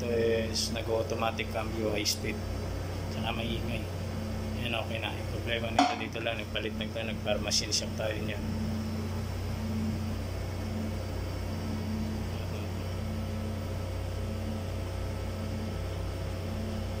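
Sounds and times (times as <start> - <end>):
mixer motor and gear hum: 0.0 - 17.0.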